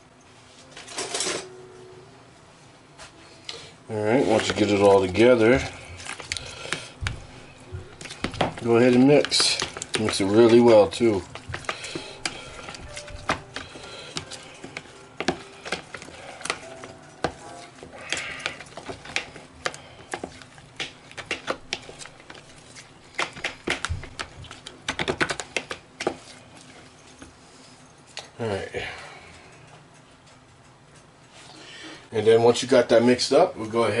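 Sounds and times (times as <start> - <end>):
plastic spoon stirring thick sauce: 4.0 - 27.2.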